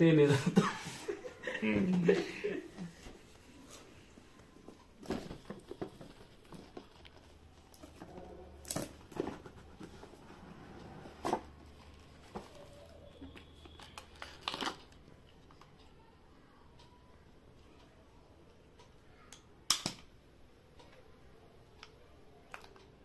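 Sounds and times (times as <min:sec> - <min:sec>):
cardboard and paper rustling: 0:04.6 - 0:14.9.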